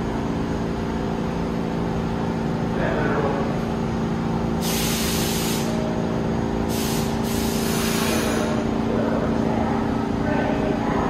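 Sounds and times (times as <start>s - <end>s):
train humming at platform: 0.0s - 11.0s
train air brakes hissing: 4.6s - 5.9s, 6.6s - 8.7s.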